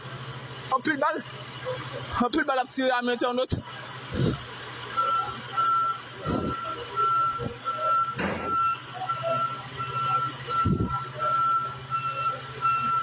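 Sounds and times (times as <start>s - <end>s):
diesel engine hum: 0.0s - 13.0s
reversing alarm beeping: 4.9s - 13.0s.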